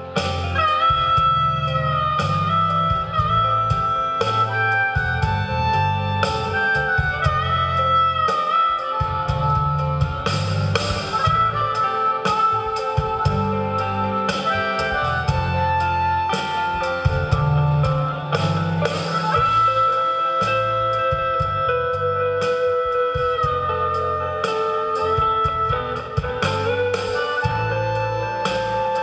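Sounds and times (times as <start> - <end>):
blues-rock band playing: 0.0 - 29.0
harmonica long notes: 0.0 - 29.0.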